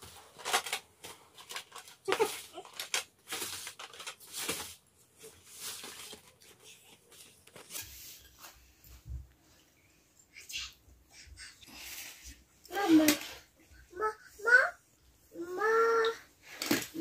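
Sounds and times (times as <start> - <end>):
plastic sheet crinkling: 0.0 - 8.2.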